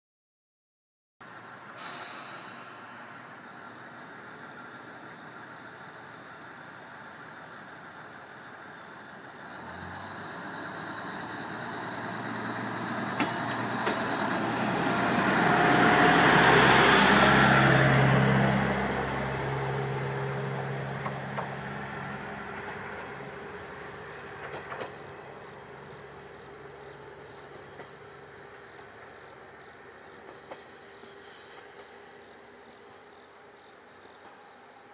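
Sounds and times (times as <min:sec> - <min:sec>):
diesel train engine revving: 0:01.4 - 0:30.6
sharp clicks of train: 0:13.0 - 0:14.4, 0:21.0 - 0:21.7, 0:24.3 - 0:25.3, 0:27.5 - 0:28.2, 0:30.1 - 0:32.5.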